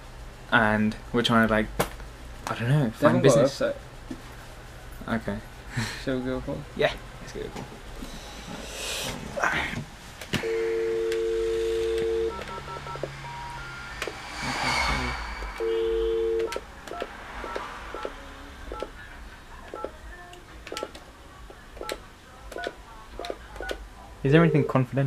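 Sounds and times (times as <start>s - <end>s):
telephone dial tone: 10.4s - 13.1s, 16.0s - 18.1s
keypad beeps: 10.4s - 13.8s, 16.0s - 18.1s.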